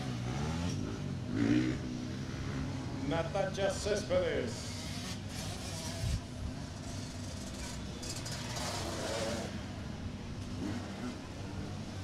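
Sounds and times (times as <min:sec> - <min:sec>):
dirt bike revving: 0:00.0 - 0:03.0, 0:04.5 - 0:09.7
dirt bike engines running: 0:00.0 - 0:12.0.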